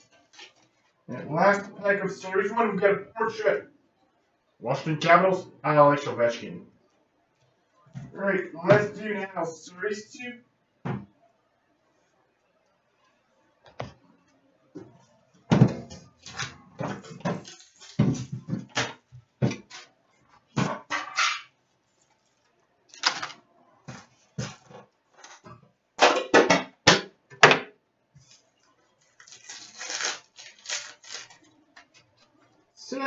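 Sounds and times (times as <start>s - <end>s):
card pack rustling: 29.0s - 32.0s.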